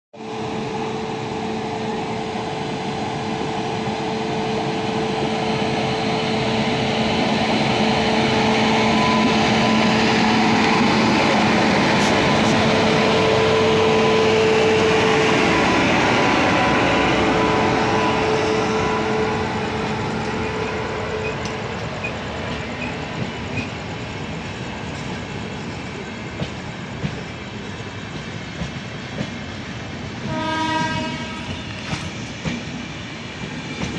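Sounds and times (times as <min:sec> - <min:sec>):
electric locomotive humming: 0:00.2 - 0:33.9
passenger coaches rolling by: 0:00.2 - 0:33.9.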